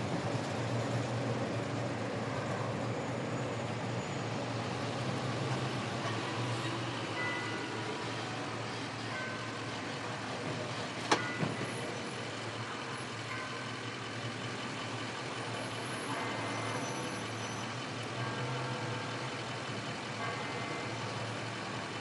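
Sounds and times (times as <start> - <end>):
car engine and tyres rumbling: 0.0 - 22.0
outdoor background noise: 0.0 - 22.0.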